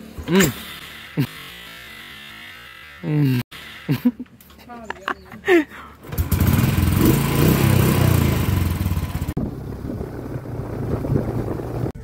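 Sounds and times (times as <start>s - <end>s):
motorcycle engine running: 6.0s - 12.0s.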